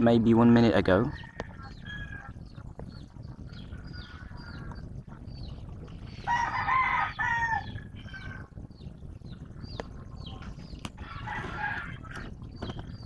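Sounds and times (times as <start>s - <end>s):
low background rumble: 0.0s - 13.0s
small birds chirping: 0.0s - 13.0s
rooster crowing: 6.3s - 8.4s, 11.0s - 12.2s.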